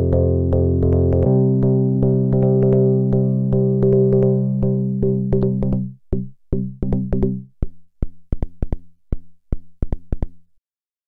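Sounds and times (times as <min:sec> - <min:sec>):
clicky gated synth notes: 0:00.0 - 0:07.4.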